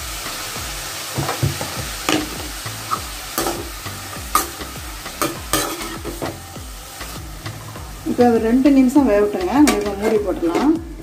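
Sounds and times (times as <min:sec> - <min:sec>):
vegetables sizzling in oil: 0:00.0 - 0:11.0
metal ladle scraping pan: 0:01.2 - 0:07.8, 0:09.4 - 0:10.8.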